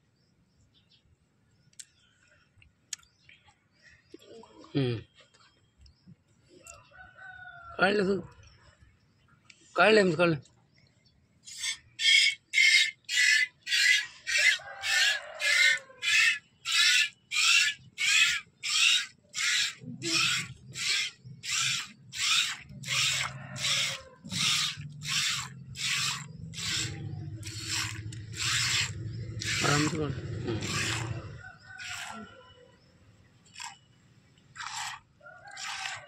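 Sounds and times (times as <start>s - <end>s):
milk squirting into steel bowl: 16.7s - 30.0s, 30.6s - 31.2s, 34.5s - 36.0s.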